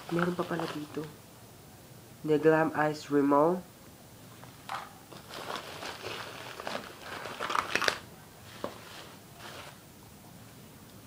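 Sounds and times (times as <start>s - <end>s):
packaging crinkling and rustling: 0.0s - 1.2s, 5.1s - 9.8s.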